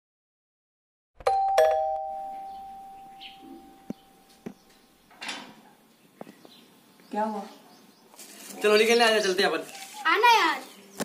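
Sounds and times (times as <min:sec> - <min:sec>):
doorbell ding-dong chime: 0:01.2 - 0:04.4
short rustle: 0:08.1 - 0:08.8, 0:09.6 - 0:10.2.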